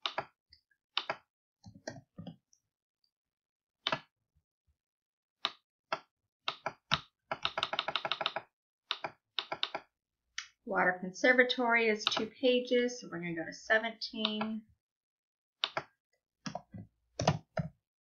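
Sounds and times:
computer keyboard keystrokes: 6.5 - 9.8, 15.6 - 15.9, 17.2 - 17.7.

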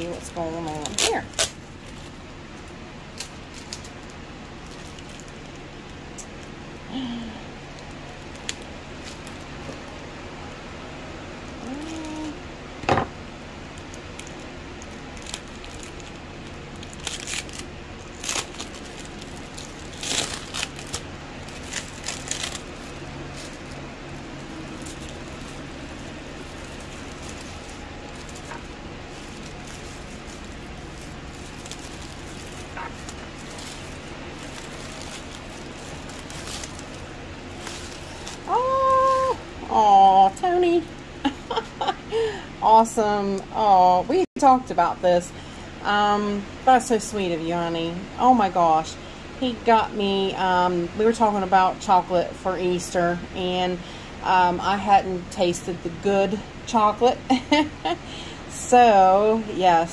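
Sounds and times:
paper wrap crinkling: 0.0 - 6.4, 7.0 - 10.0, 13.8 - 39.5.

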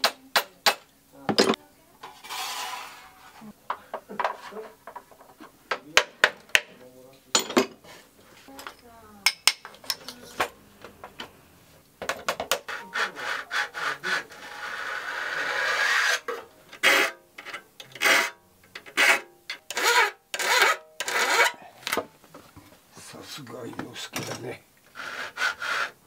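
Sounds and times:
hand file scraping saw teeth: 12.6 - 21.6, 24.9 - 26.0.

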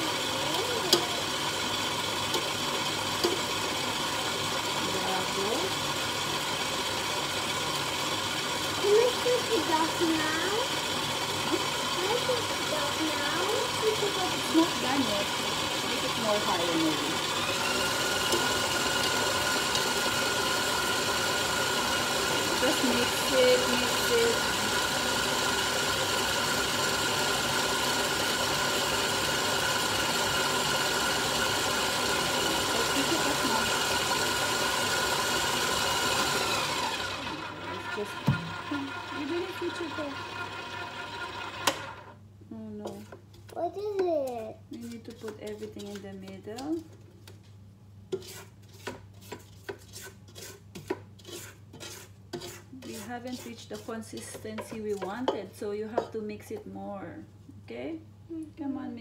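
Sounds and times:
stand mixer motor whirring: 0.0 - 42.2
wooden spoon scraping bowl: 42.8 - 43.5, 44.5 - 47.4, 48.1 - 56.7.

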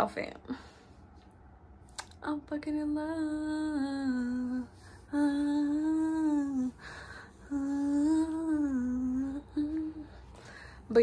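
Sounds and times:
woman humming: 3.0 - 10.2.

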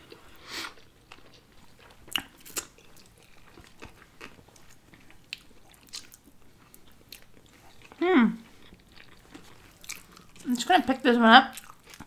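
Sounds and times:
people chewing food: 0.0 - 12.0.

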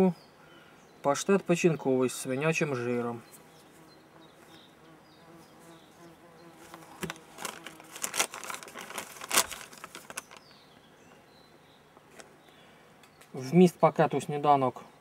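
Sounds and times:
fly buzzing: 3.5 - 8.1
plastic packaging crinkling: 6.6 - 10.5.

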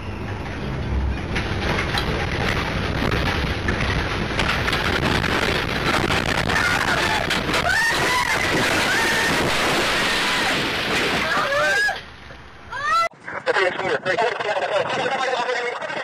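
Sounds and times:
truck road and engine noise: 0.0 - 7.6.

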